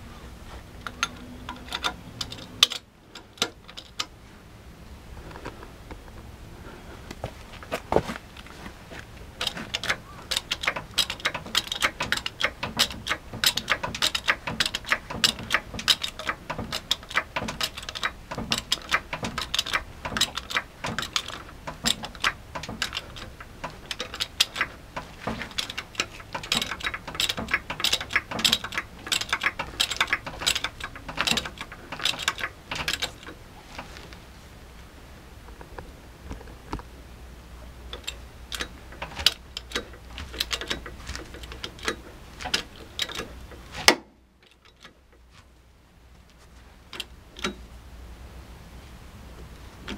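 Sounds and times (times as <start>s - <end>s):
hydraulic jack clicking: 0.8s - 4.2s, 9.2s - 34.0s, 37.9s - 45.2s, 46.9s - 47.6s.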